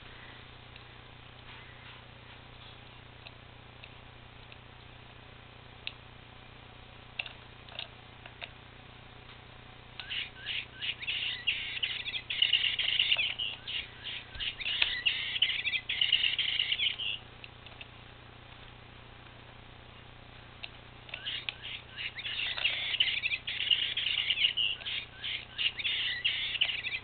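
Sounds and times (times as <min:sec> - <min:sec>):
electronic bird chirps from toy: 0:10.0 - 0:17.2, 0:21.1 - 0:27.0.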